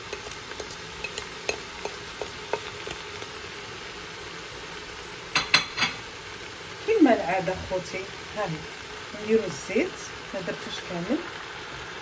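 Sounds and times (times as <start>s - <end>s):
spices ticking into metal pot: 0.0s - 3.5s
steady hiss: 0.0s - 12.0s.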